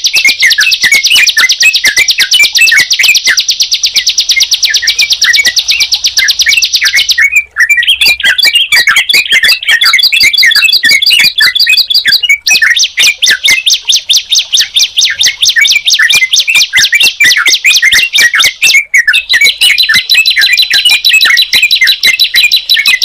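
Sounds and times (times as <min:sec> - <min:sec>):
birds singing high rapid notes: 0:00.0 - 0:23.0
lower bird chirps: 0:00.0 - 0:23.0
lower-pitched bird trill: 0:00.0 - 0:23.0.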